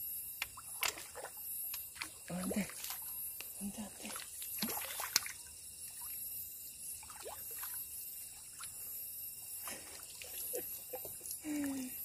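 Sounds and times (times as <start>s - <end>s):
water dripping: 0.4s - 6.3s, 6.9s - 8.9s
water sloshing and splashing: 0.4s - 8.9s, 9.6s - 11.3s.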